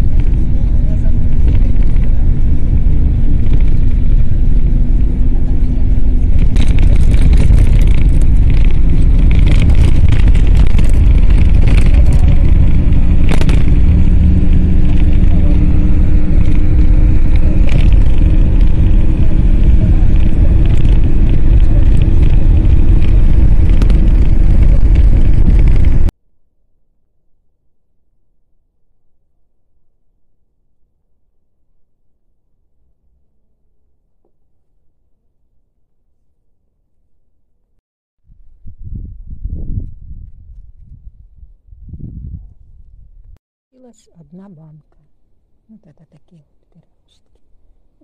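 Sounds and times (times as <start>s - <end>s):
engine hum rising: 0.0s - 26.1s
road and wind rumble: 0.0s - 26.1s, 38.3s - 48.0s
brief rattles: 3.0s - 26.1s.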